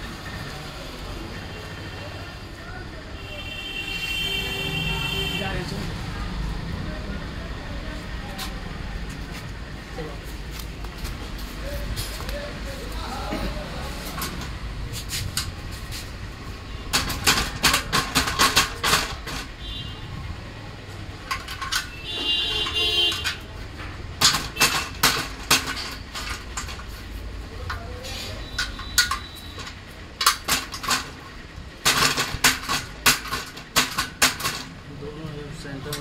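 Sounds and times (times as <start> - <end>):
metal sewing machine stand rattling: 16.9 - 19.5, 21.2 - 23.5, 24.2 - 26.9, 28.4 - 31.2, 31.8 - 34.8.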